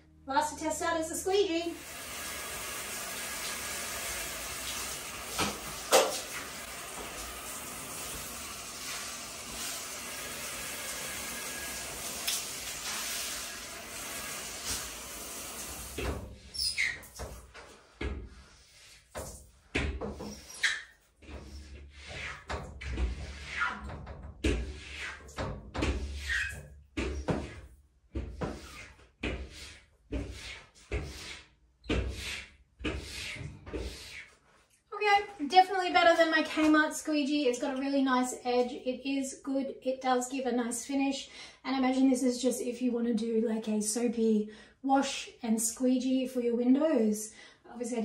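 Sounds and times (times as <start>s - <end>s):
shower spraying on glass: 1.7s - 17.5s
squeegee blade squeaks: 16.5s - 17.1s
squeegee strokes on wet glass: 16.5s - 34.7s.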